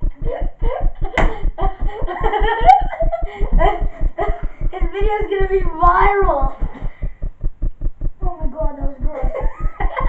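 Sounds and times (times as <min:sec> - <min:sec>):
children laughing: 0:00.0 - 0:06.2, 0:09.1 - 0:10.0
fast low thumping: 0:00.0 - 0:10.0.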